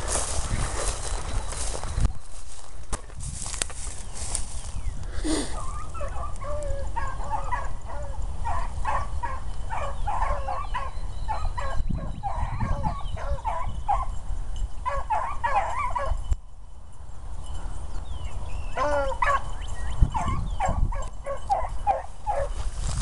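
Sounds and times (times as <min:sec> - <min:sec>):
hounds baying: 0:05.5 - 0:16.2, 0:18.6 - 0:22.6.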